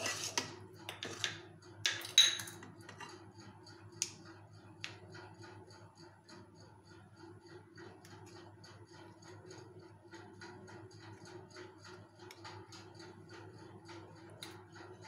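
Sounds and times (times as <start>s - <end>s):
spoon scraping a steel pan: 0.0s - 1.4s
spoon clinking in a pan: 1.9s - 2.6s.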